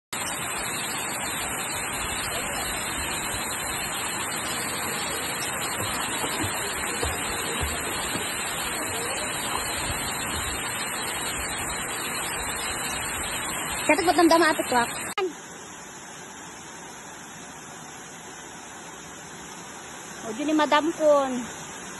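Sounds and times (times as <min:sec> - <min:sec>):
waterfall rushing into pool: 0:00.1 - 0:21.9.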